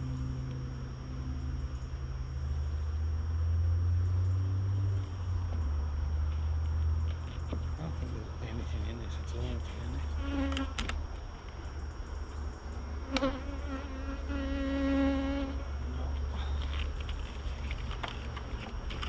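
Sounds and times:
honey bees buzzing: 0:07.8 - 0:19.0
single bees flying close by: 0:09.8 - 0:10.9, 0:13.0 - 0:15.8.

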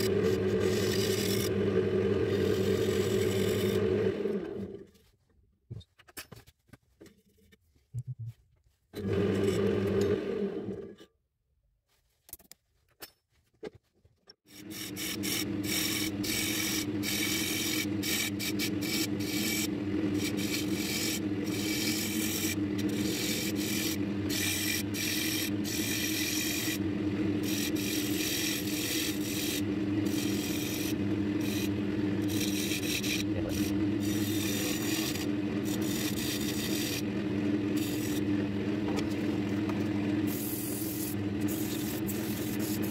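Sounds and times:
gouge scraping spinning wood: 0:00.0 - 0:04.8, 0:14.5 - 0:42.9
wood lathe humming: 0:00.0 - 0:04.8, 0:14.5 - 0:42.9.

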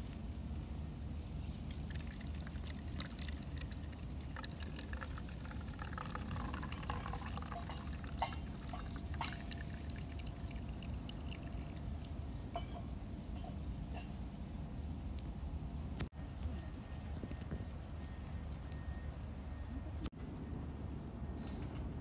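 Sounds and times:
tea pouring into a cup: 0:01.4 - 0:12.2.

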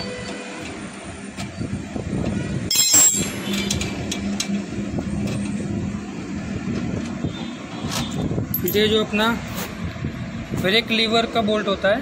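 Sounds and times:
spanner clinking on metal: 0:02.7 - 0:04.5, 0:08.5 - 0:08.9.

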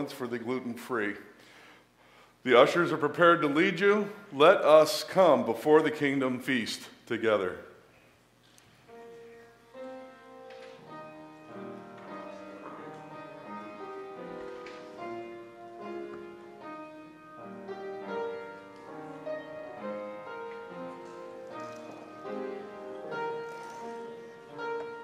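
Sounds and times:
slow keyboard music: 0:08.6 - 0:25.0.

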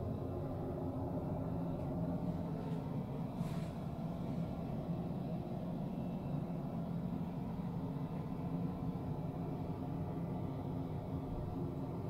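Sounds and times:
ship machinery hum and rumble: 0:00.0 - 0:12.0.

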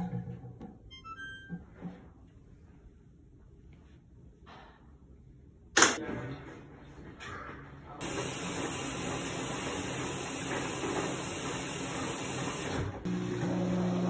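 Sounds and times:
water spraying into washer drum: 0:08.0 - 0:12.8
washing machine low hum: 0:08.0 - 0:14.0.

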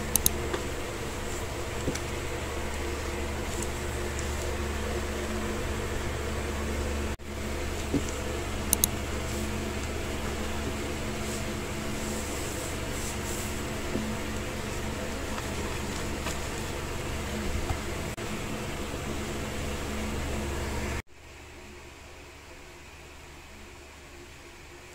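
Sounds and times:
steady mechanical hum: 0:00.0 - 0:24.9
plastic wrapping rustling: 0:09.2 - 0:17.5.

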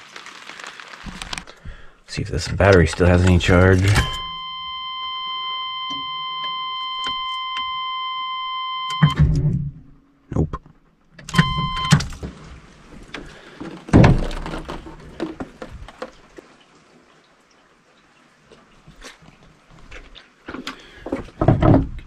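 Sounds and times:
dashboard warning tone: 0:02.8 - 0:09.2, 0:11.3 - 0:12.0.

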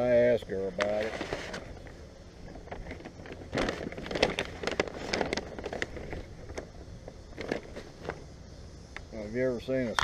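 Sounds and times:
paper bag rustling and crinkling: 0:00.8 - 0:08.2.

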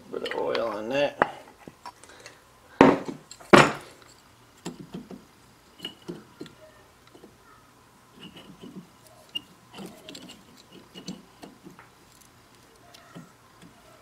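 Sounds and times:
loud metal clunks: 0:02.8 - 0:03.9
metal tools handled: 0:05.7 - 0:07.3, 0:08.2 - 0:13.3.

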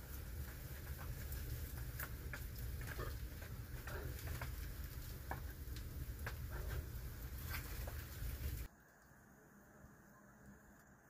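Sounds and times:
campfire crackling and popping: 0:00.0 - 0:08.7.

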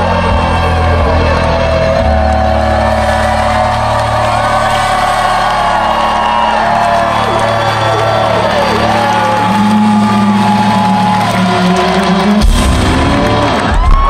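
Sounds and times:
crowd whooping and shouting: 0:00.0 - 0:14.0
heavy crash of drums and bass: 0:12.3 - 0:14.0.

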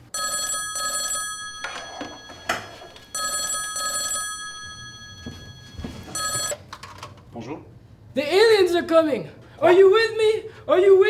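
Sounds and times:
desk telephone ringing: 0:00.0 - 0:06.7.

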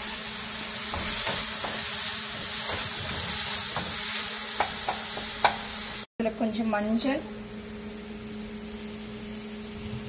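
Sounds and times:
vegetables sizzling in hot oil: 0:00.0 - 0:06.1
spatula tapping pan: 0:04.6 - 0:05.7.

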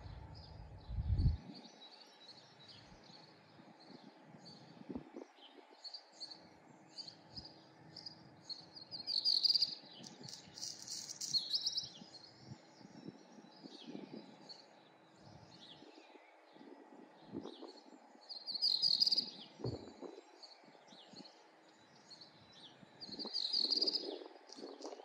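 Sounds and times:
birds chirping and singing: 0:00.0 - 0:25.0
faint steady hum: 0:00.0 - 0:25.0.

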